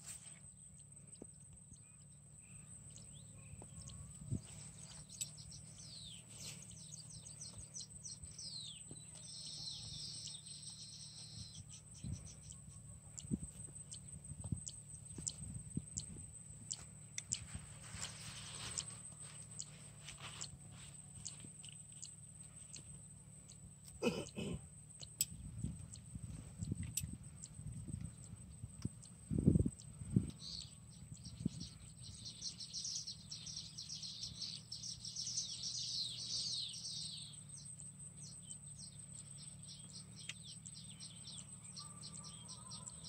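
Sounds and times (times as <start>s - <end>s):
birds chirping: 0.0s - 43.0s
faint low hum: 0.0s - 43.0s.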